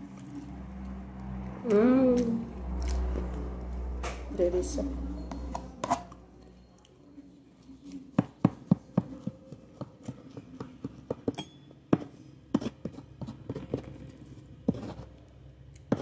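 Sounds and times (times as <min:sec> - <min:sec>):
knife cutting through bread: 0:12.0 - 0:15.2.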